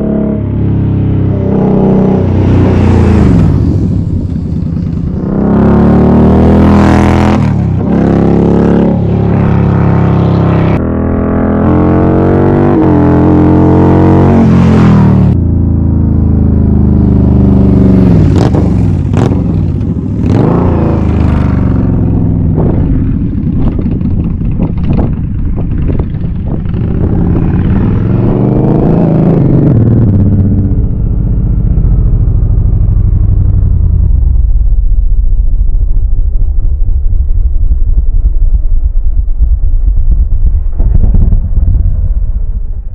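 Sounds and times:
motorcycle engine revving: 0:00.0 - 0:35.1
exhaust cracks: 0:22.4 - 0:28.4, 0:31.7 - 0:42.9.

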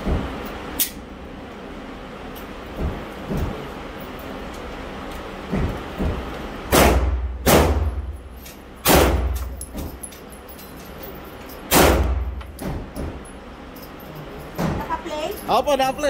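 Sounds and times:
pistol shots with echo: 0:06.7 - 0:07.9, 0:08.8 - 0:09.3, 0:11.7 - 0:12.2.

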